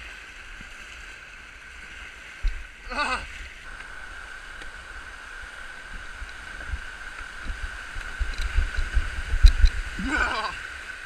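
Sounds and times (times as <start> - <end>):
white water rushing: 0.0 - 11.0
wind buffeting microphone: 2.4 - 10.6.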